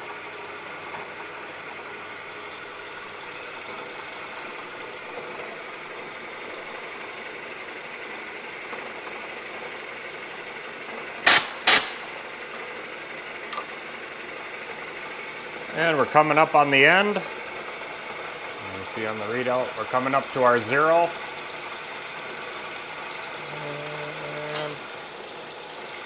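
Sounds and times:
milling machine cutting metal: 13.5 - 26.0.

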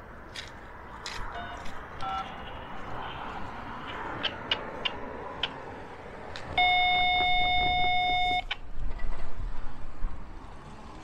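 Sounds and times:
sharp clicks: 3.8 - 5.6.

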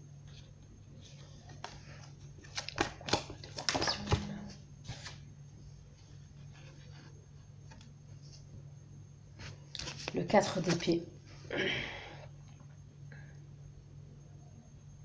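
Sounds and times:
cards snapping and tapping: 2.4 - 4.4.

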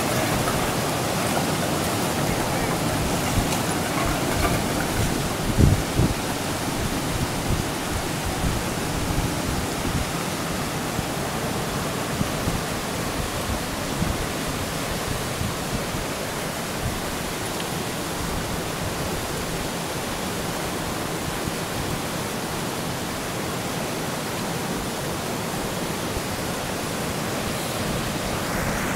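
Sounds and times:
ice grinding and sliding: 0.0 - 6.6.

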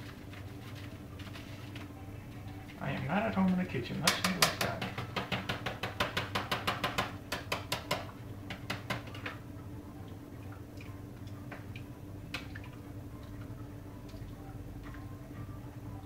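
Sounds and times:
spoon knocking on steel pot: 4.1 - 9.2.

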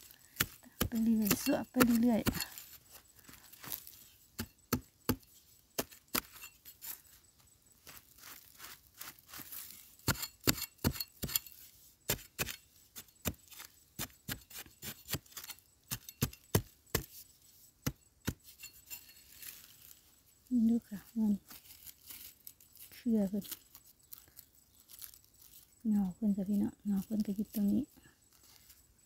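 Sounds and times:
metal tool striking earth: 0.0 - 7.2, 7.8 - 20.0.

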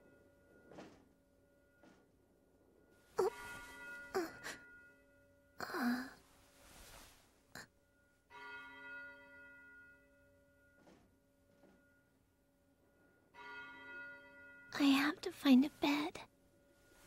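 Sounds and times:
bell ringing: 0.0 - 5.5, 7.8 - 12.2.

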